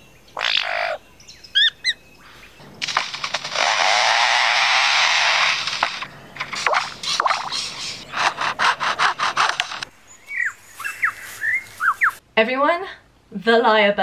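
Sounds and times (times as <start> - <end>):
bird mimicking a chainsaw: 2.8 - 9.9
bird whistling descending notes: 10.2 - 12.2.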